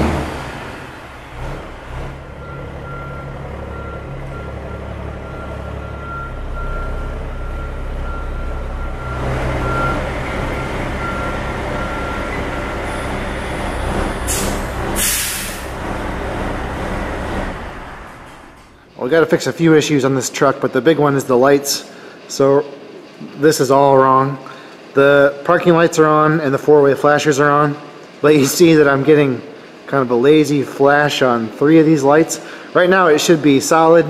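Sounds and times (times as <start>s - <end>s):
diesel truck engine running: 0.0s - 19.1s, 31.8s - 34.0s
backup alarm beeping: 2.4s - 15.6s
air brake hiss: 14.1s - 15.8s.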